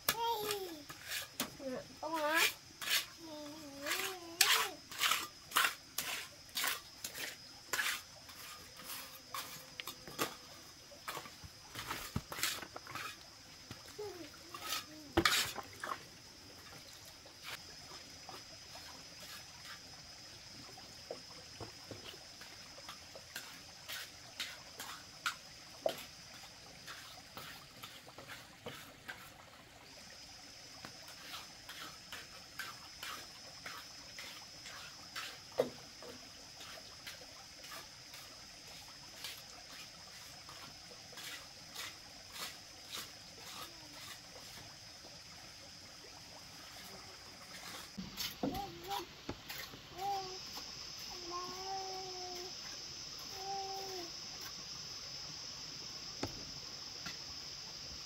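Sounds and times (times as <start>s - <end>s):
high insect drone: 0.0s - 58.0s
trowel scraping wet cement: 0.1s - 10.4s, 11.1s - 13.2s, 14.0s - 16.0s, 41.2s - 44.6s.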